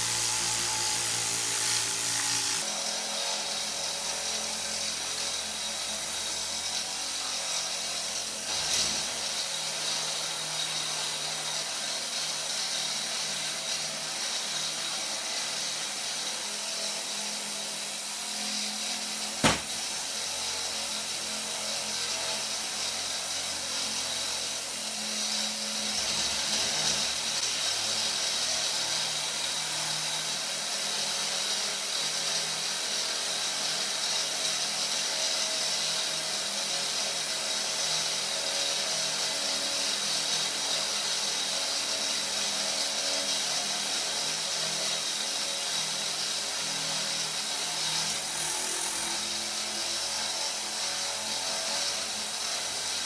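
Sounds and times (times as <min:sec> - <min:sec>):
steam hissing: 0:16.8 - 0:20.3.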